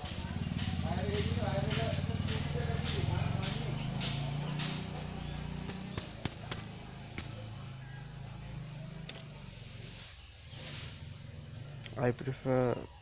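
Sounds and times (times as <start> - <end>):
hand tools clicking and tapping: 0.0 - 7.6
steady low hum: 0.0 - 12.9.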